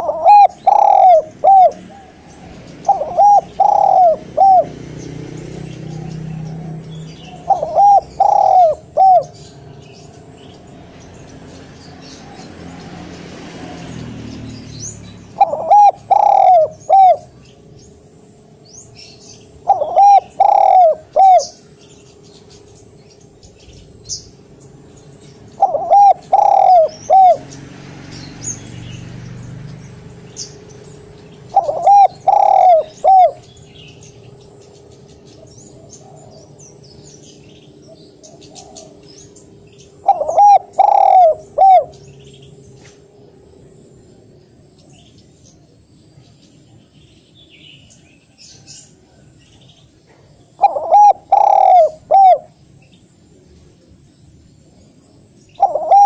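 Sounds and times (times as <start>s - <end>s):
dove cooing: 0.0s - 10.3s, 15.3s - 17.5s, 19.0s - 21.7s, 25.5s - 27.5s, 31.4s - 34.0s, 35.4s - 37.0s, 37.8s - 42.1s, 50.5s - 52.6s, 55.6s - 56.0s.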